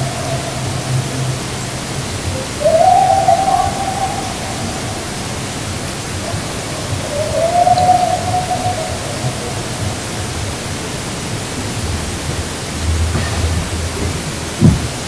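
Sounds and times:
long howl-like calls: 0:00.0 - 0:11.8
steady loud hiss: 0:00.0 - 0:15.0.

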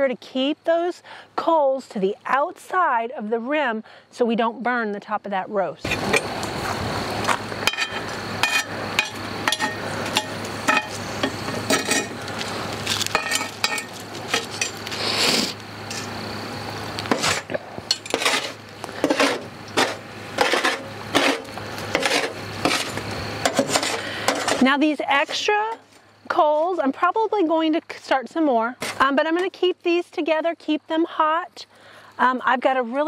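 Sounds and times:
metal tongs clinking: 0:13.1 - 0:14.0
light scrapes: 0:17.1 - 0:24.6.

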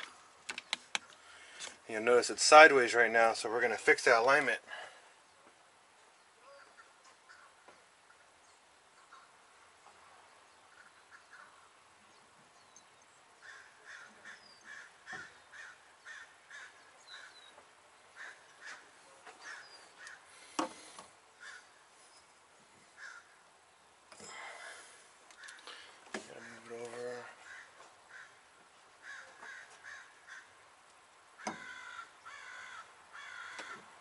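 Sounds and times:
crow cawing: 0:13.4 - 0:17.5, 0:18.1 - 0:20.4, 0:21.4 - 0:21.8, 0:23.0 - 0:23.4, 0:24.4 - 0:30.6, 0:31.4 - 0:33.9.

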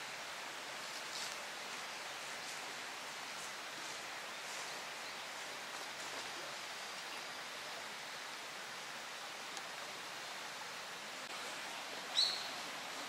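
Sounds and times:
forest ambience hiss: 0:00.0 - 0:13.0
short high bird chirp: 0:12.1 - 0:12.6.

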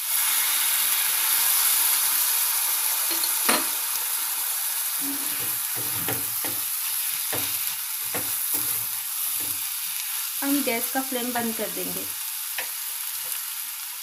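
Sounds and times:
pumpkin sizzling in a pan: 0:00.0 - 0:14.0
metal spatula scraping a pan: 0:05.0 - 0:09.7.

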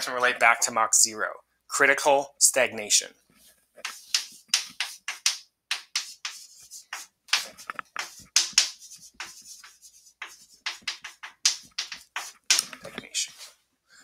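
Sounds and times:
chalk scratching on blackboard: 0:03.8 - 0:13.6.

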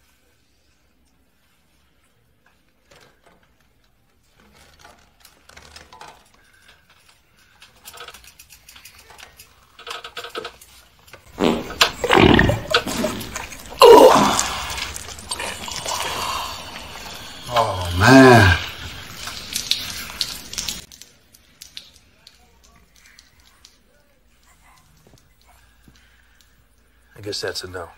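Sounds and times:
rough growl-like roar: 0:12.0 - 0:14.8, 0:17.5 - 0:18.6.

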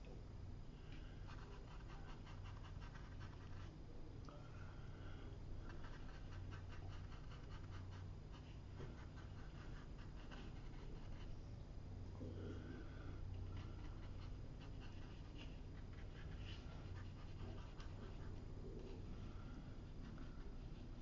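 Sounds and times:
steady low hum: 0:00.0 - 0:21.0
brush dabbing on paper: 0:01.1 - 0:03.7, 0:05.6 - 0:11.4, 0:13.2 - 0:21.0.

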